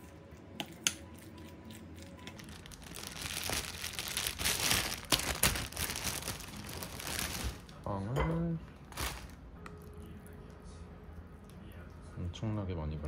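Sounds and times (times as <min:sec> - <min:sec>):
plastic crinkling and rustling: 0:01.8 - 0:07.9, 0:08.8 - 0:09.4.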